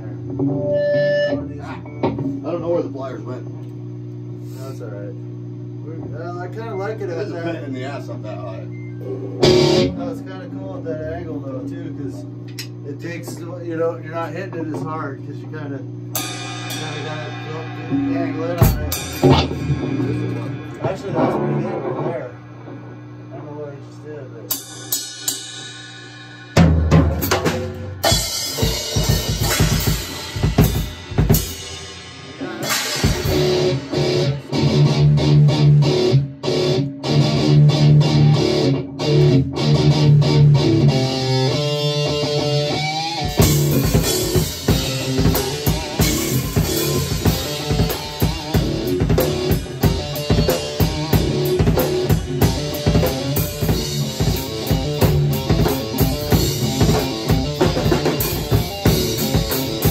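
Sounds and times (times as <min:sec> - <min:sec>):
electric guitar playing: 0:00.0 - 0:02.6, 0:09.0 - 0:12.8, 0:16.1 - 0:23.5, 0:24.5 - 0:59.9
drum kit playing: 0:09.4 - 0:10.7, 0:16.1 - 0:23.5, 0:24.4 - 0:59.9.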